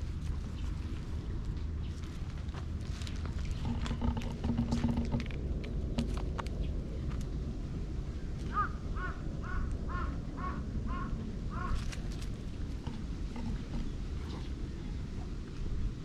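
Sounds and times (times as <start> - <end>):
crow cawing: 8.5 - 11.9.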